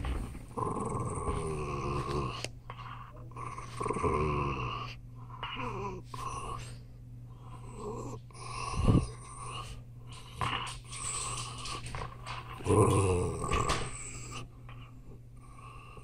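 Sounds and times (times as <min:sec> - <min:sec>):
small dog growling: 0:00.0 - 0:02.5, 0:03.1 - 0:06.6, 0:07.6 - 0:14.4.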